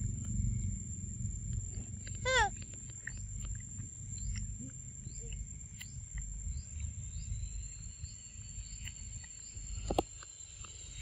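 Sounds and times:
low rumble: 0:00.0 - 0:08.7
faint high insect hum: 0:00.0 - 0:11.0
small bird chirping: 0:00.4 - 0:11.0.

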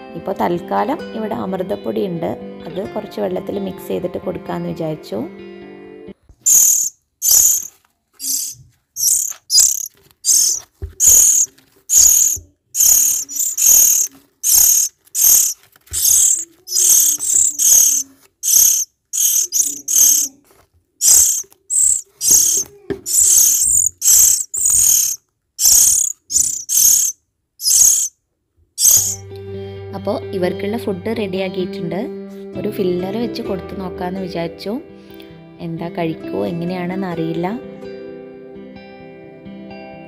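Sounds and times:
bird chicks rasping begging calls: 0:06.5 - 0:20.3, 0:21.0 - 0:28.1, 0:28.8 - 0:29.2.

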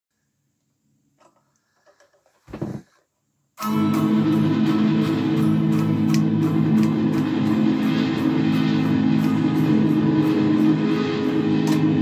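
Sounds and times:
electric guitar strummed chords: 0:03.6 - 0:12.0.

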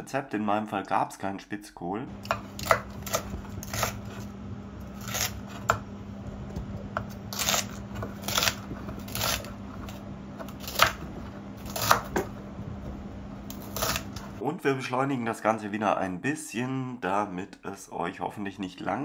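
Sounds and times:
knife slicing cabbage on board: 0:02.2 - 0:05.8, 0:06.9 - 0:12.4, 0:13.5 - 0:14.4.

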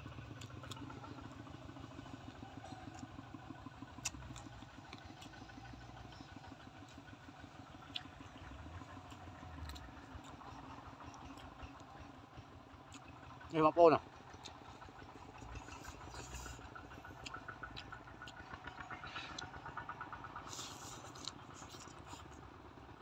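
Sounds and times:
small engine idling: 0:00.0 - 0:23.0
sharp clicks from eating: 0:00.3 - 0:01.3, 0:04.0 - 0:12.2, 0:12.8 - 0:13.6, 0:14.2 - 0:22.4.

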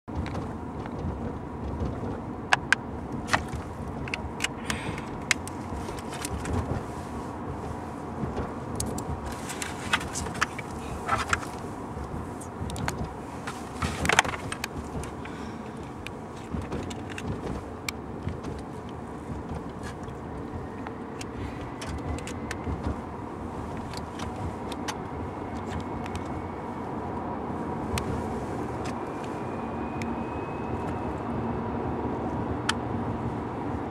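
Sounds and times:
car road and engine noise: 0:00.0 - 0:33.9
light clicks and knocks: 0:07.6 - 0:23.0.

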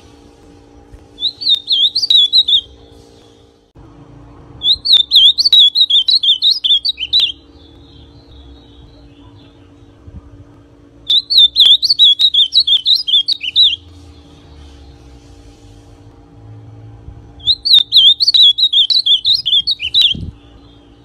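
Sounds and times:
bird singing warbled notes: 0:01.2 - 0:02.9, 0:04.6 - 0:10.0, 0:11.0 - 0:15.0, 0:17.4 - 0:21.0.

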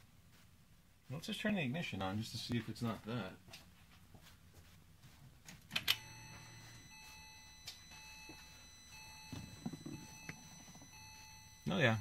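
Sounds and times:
high electronic tones: 0:06.0 - 0:12.0.

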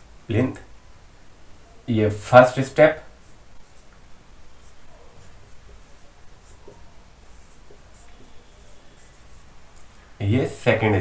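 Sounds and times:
marker scratching on whiteboard: 0:02.5 - 0:11.0.

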